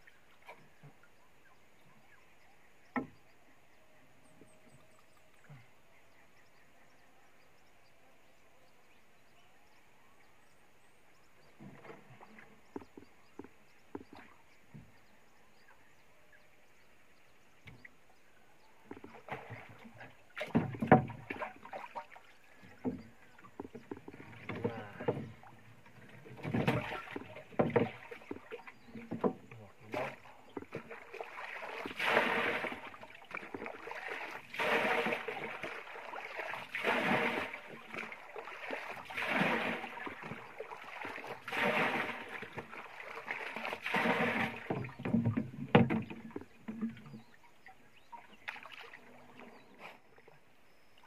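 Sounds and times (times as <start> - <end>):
water splashing: 18.6 - 51.0
knocks against wooden boat: 20.4 - 21.4, 26.4 - 28.4, 29.0 - 30.9, 44.2 - 47.0.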